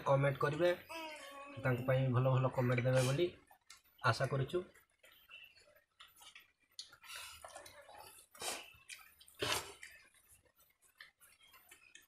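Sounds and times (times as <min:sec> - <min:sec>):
lips smacking and chewing: 0:05.8 - 0:12.0.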